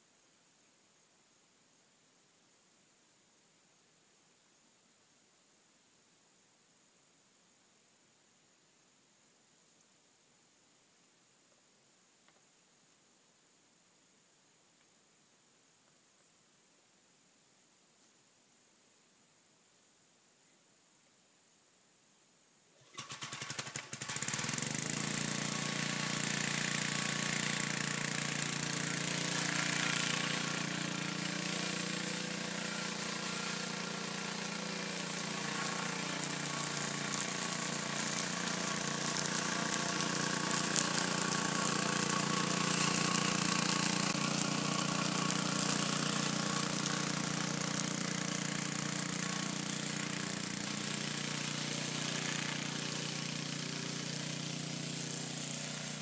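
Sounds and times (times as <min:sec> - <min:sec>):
lawn mower engine running: 0:22.8 - 0:56.0.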